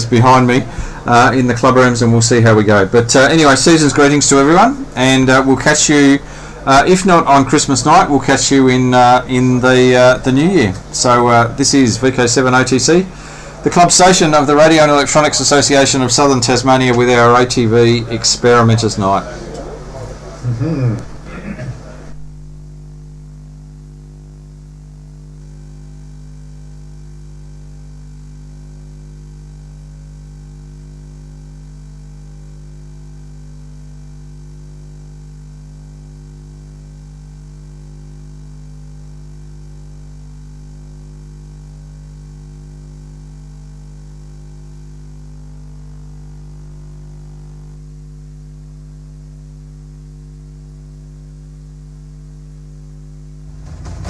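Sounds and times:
faint hiss: 0.0s - 14.3s
mains hum and buzz: 0.0s - 54.0s
loud abrupt sound: 53.4s - 54.0s.

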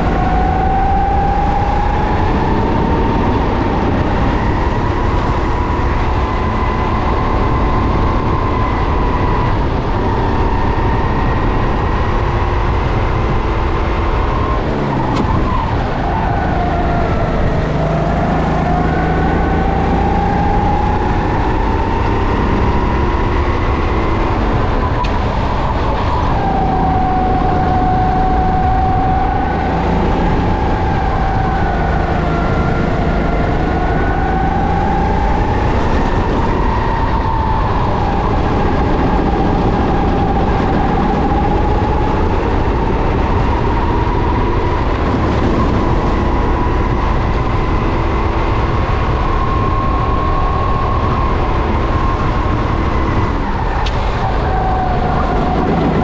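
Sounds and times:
kart engine revving: 0.0s - 56.0s.

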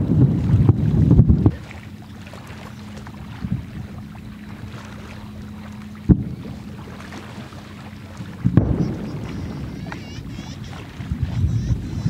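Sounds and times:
wind noise: 0.0s - 1.8s, 8.2s - 12.0s
low hum: 0.0s - 12.0s
fireworks bangs: 8.5s - 12.0s.

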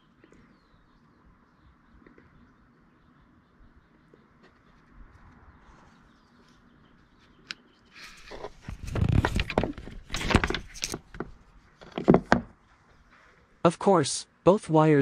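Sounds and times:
rustling and knocking on microphone: 8.2s - 12.6s.

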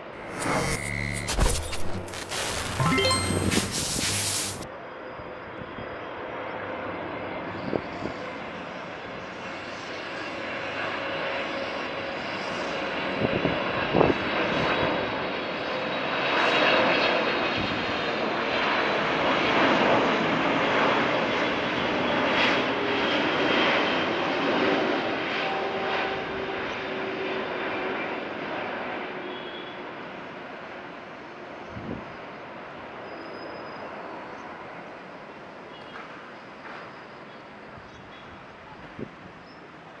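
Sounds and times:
faint steady whine: 0.0s - 4.6s
short clicks: 0.2s - 4.6s.

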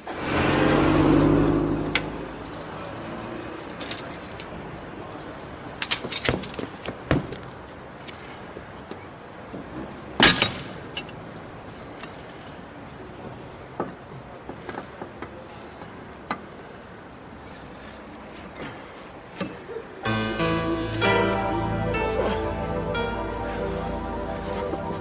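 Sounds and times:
car driving past: 0.0s - 3.8s.

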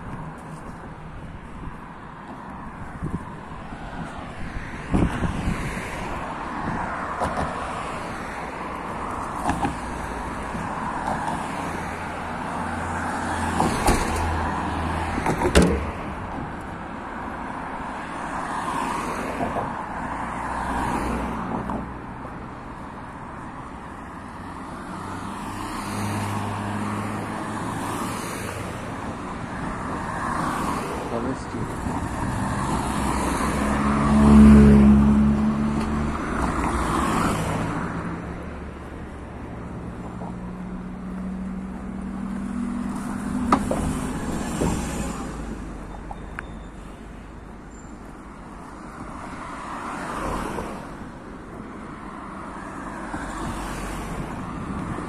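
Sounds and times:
cars driving past: 0.0s - 55.0s
sharp knocks: 43.4s - 44.0s.

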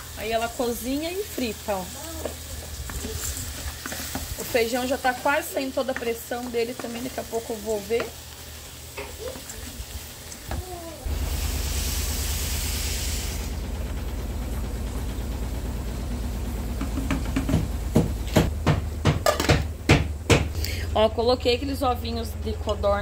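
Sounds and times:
steady low hum: 10.5s - 23.0s
pressure cooker steam hissing: 11.1s - 14.1s.

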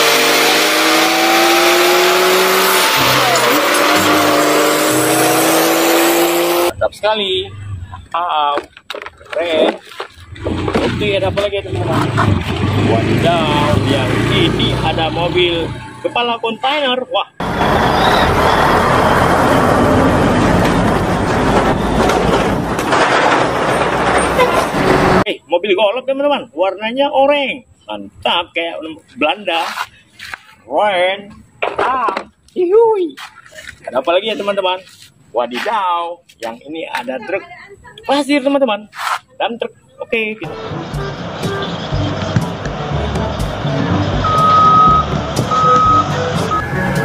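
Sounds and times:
road noise: 0.0s - 25.5s, 27.6s - 47.0s
heavy trucks driving past: 17.4s - 25.2s, 40.4s - 47.0s
truck diesel engine running: 40.4s - 47.0s.

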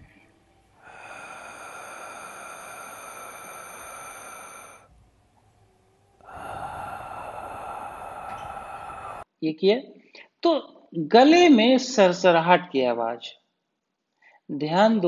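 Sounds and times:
soft hissing breath: 0.0s - 9.3s.

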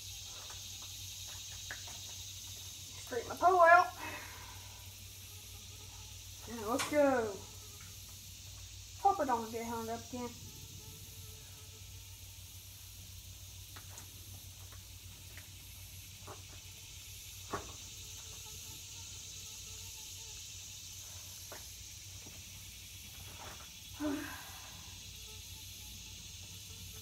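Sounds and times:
high-pitched insect hiss: 0.0s - 27.0s.

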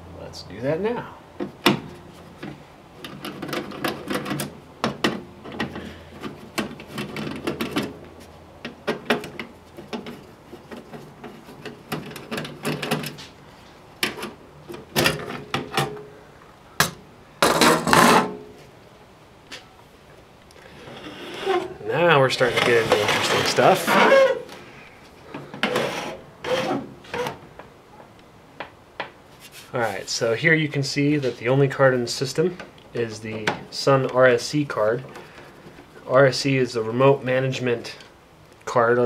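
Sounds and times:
metal cover panel scraping: 17.4s - 18.4s, 20.7s - 24.6s.

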